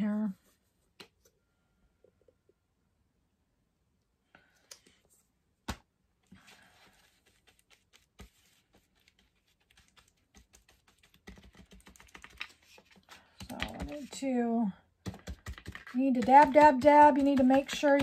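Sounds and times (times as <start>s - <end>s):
brush dabbing paint on plate: 6.4s - 14.4s, 15.1s - 18.0s.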